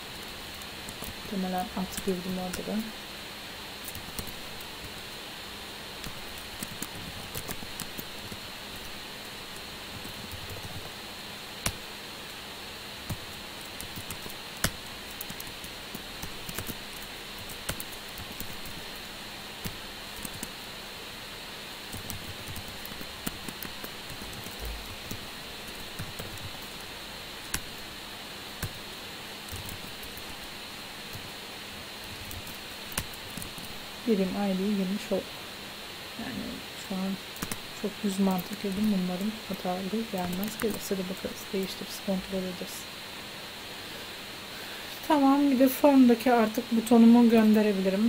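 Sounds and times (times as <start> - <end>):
background hiss: 0.0 - 48.0
faint hum: 0.0 - 48.0
typing on a computer keyboard: 6.0 - 8.4, 9.9 - 10.9, 13.1 - 18.8, 19.6 - 20.5, 21.9 - 26.8, 29.5 - 30.4, 37.4 - 37.6.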